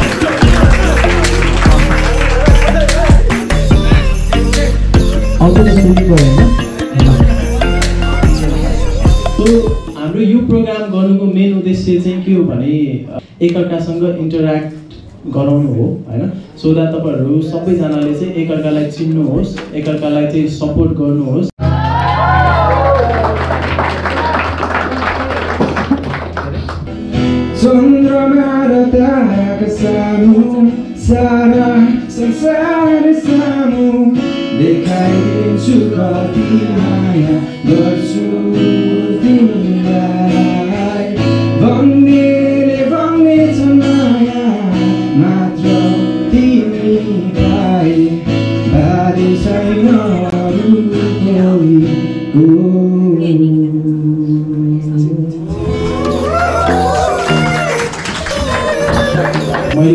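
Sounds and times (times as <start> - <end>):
man singing: 0.0 - 10.9, 27.5 - 57.6, 59.0 - 59.9.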